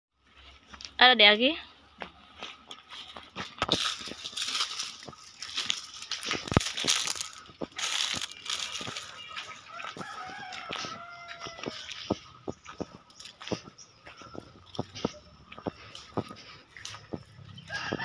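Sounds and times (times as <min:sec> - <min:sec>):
footsteps through tall grass: 0:01.7 - 0:18.0
rooster crowing: 0:08.8 - 0:12.2, 0:17.5 - 0:18.0.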